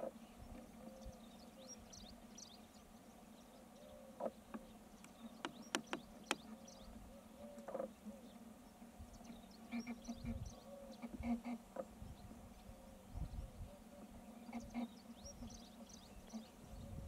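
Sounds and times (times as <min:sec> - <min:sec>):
sharp clicks: 0:05.0 - 0:06.4.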